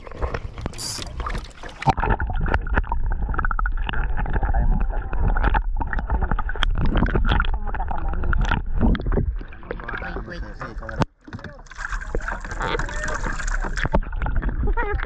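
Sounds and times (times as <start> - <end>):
muffled underwater sloshing: 0.0 - 15.0
camera splashing into water: 11.6 - 14.1.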